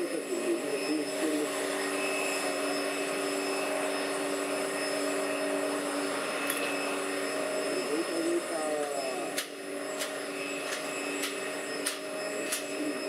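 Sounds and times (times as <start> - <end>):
jet engine whine and hum: 0.0 - 13.0.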